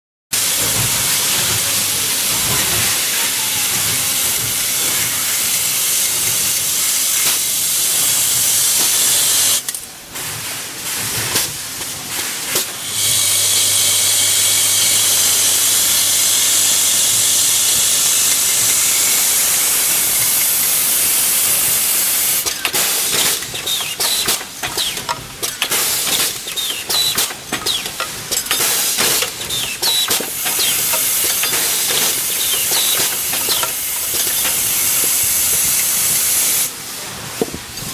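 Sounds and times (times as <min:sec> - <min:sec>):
machinery hiss-like din: 0:00.4 - 0:09.6, 0:10.2 - 0:37.8
clicking and clattering: 0:22.4 - 0:35.9
parts-feeder bowl humming: 0:26.3 - 0:36.7.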